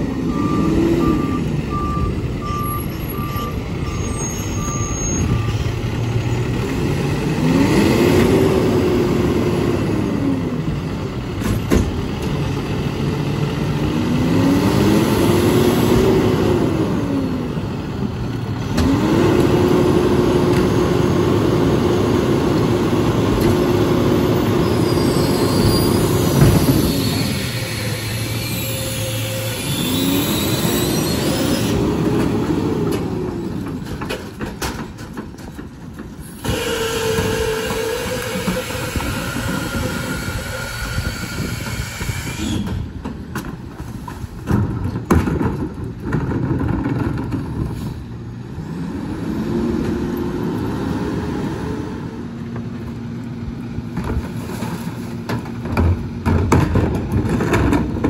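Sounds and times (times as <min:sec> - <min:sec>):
diesel engine rising and falling: 0:00.0 - 0:34.6, 0:35.6 - 0:43.6, 0:46.1 - 0:54.3
metal squeals: 0:02.4 - 0:06.5, 0:24.3 - 0:31.8, 0:36.4 - 0:42.9
hydraulic packer running: 0:18.5 - 0:43.5.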